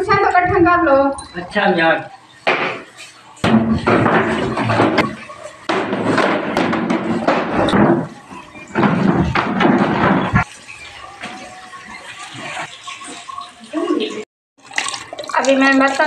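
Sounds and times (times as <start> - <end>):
plastic chairs knocking and scraping: 2.5 - 10.5.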